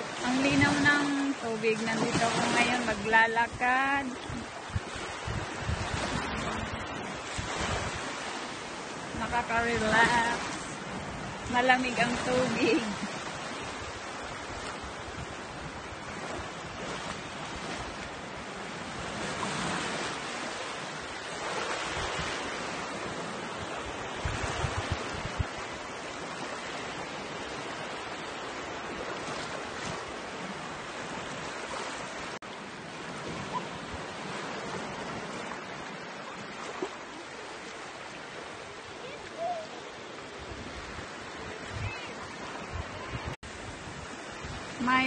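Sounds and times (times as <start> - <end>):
small waves washing over sand: 0.0 - 45.0
wind buffeting microphone: 0.4 - 28.0, 38.5 - 45.0.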